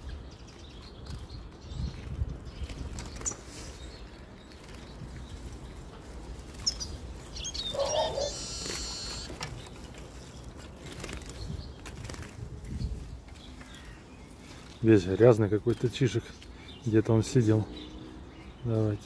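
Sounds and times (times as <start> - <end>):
songbirds chirping: 0.0 - 19.0
high bird trill: 6.6 - 9.5.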